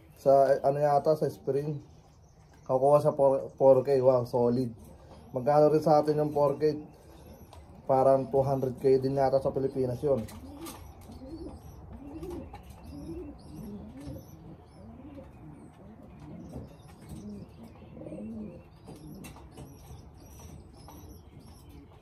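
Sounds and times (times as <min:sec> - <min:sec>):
pigeons cooing: 0:02.7 - 0:22.0.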